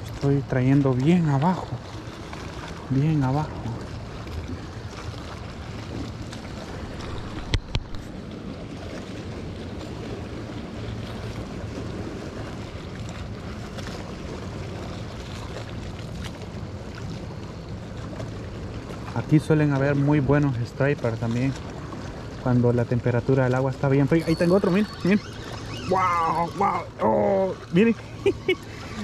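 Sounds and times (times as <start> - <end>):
water lapping: 0.0 - 29.0
wind on microphone: 3.4 - 12.6.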